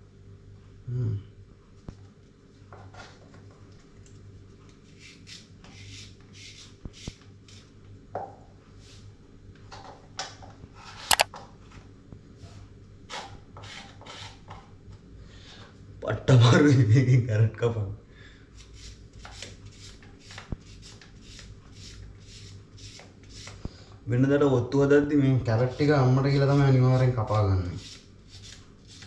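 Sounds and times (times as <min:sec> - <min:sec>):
cutter scraping carrot: 0:10.9 - 0:11.3, 0:25.4 - 0:29.0
sharp click: 0:11.1 - 0:11.3.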